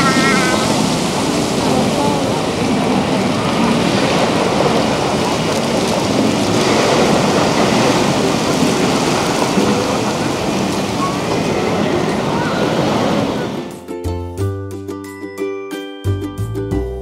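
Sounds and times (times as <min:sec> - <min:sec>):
faint voices: 0:00.0 - 0:06.4, 0:07.4 - 0:13.7
loud rushing outdoor noise: 0:00.0 - 0:14.0.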